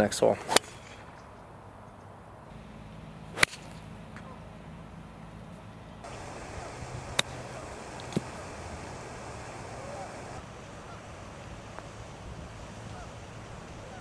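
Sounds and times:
golf club striking ball: 0:03.3 - 0:03.8, 0:06.0 - 0:10.4.

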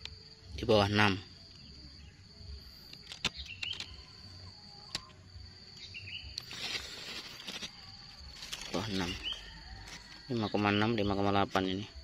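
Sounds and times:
bird-like chirps: 0:00.0 - 0:12.0
insects droning: 0:00.0 - 0:12.0
sharp clicks: 0:02.8 - 0:05.2.

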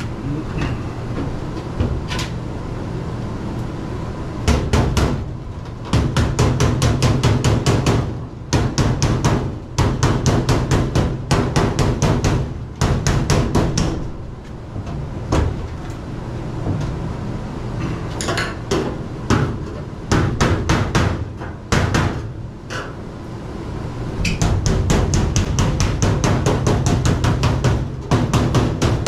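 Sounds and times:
hammer tapping on sheet metal: 0:04.5 - 0:05.2, 0:05.9 - 0:14.1, 0:18.3 - 0:22.9, 0:24.2 - 0:29.0.

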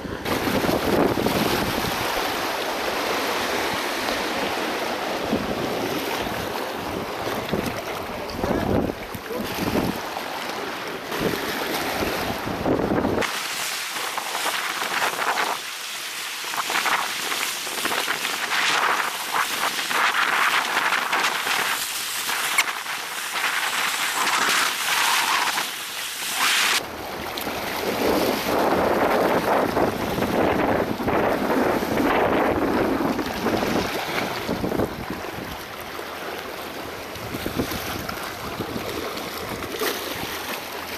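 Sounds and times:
wind buffeting microphone: 0:00.0 - 0:10.1, 0:11.1 - 0:13.4, 0:27.5 - 0:35.8, 0:37.1 - 0:39.8
small waves washing on rocks: 0:00.0 - 0:40.9.

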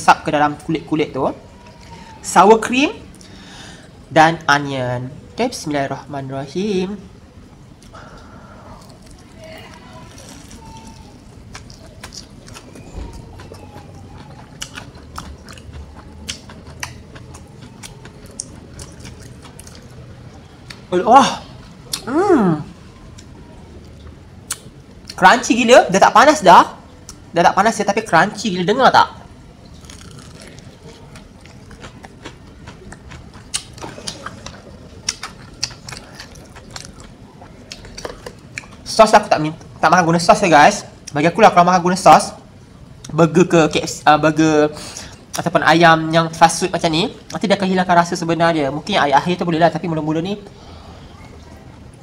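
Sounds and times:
crunchy chicken being chewed: 0:07.8 - 0:20.9, 0:29.7 - 0:38.9.

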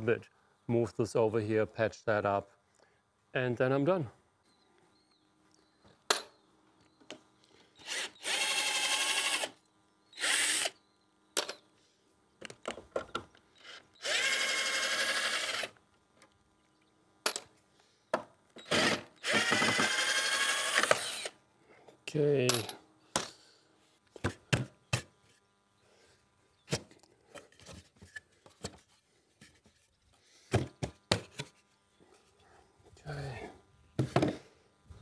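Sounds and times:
cordless drill running: 0:07.8 - 0:09.6, 0:10.2 - 0:10.8, 0:13.6 - 0:15.8, 0:18.6 - 0:21.4.

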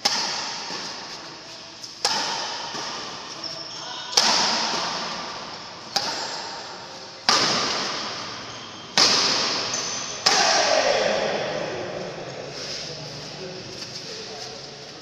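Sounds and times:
badminton racket hitting shuttlecock: 0:00.0 - 0:01.3, 0:02.0 - 0:03.3, 0:04.1 - 0:08.4.

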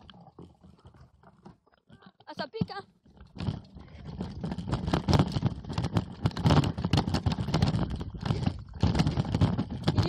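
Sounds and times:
mountain bike rattling over ground: 0:02.3 - 0:10.0.

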